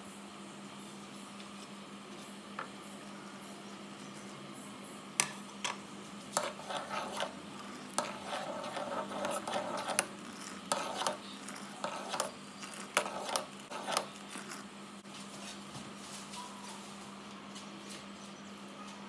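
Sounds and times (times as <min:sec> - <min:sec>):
utensils scraping a container: 0:06.4 - 0:14.7.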